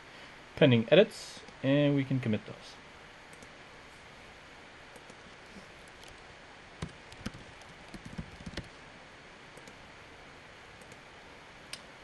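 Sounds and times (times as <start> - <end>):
faint steady hiss: 0.0 - 12.0
keyboard keystrokes: 6.8 - 8.7.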